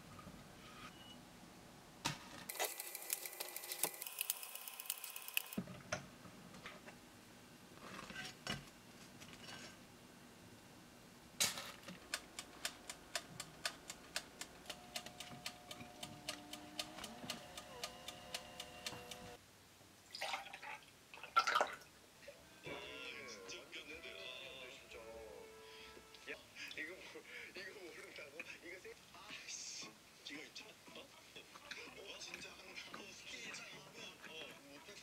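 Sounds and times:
mechanical ticking: 12.1s - 19.4s.

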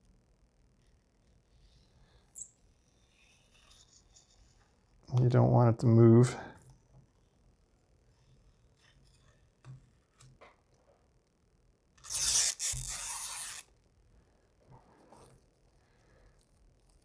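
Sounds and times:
vinyl film ripping: 12.0s - 13.7s.

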